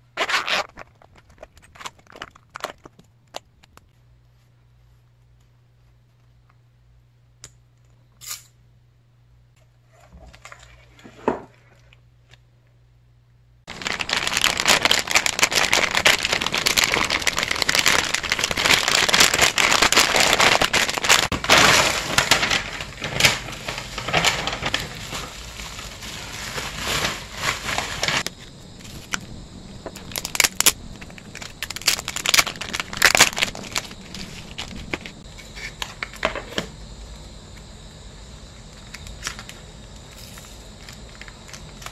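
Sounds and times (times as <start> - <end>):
plastic packaging crinkling: 0.2 - 3.9, 13.7 - 35.2.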